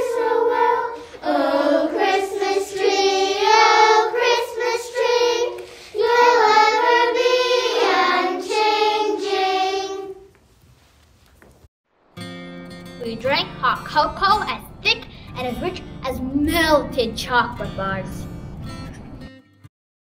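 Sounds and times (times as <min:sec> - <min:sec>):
children singing: 0:00.0 - 0:10.3.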